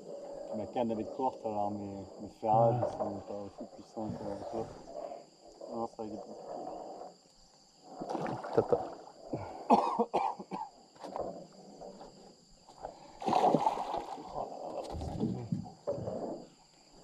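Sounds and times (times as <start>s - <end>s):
water splashing: 7.9s - 9.2s, 12.8s - 16.2s.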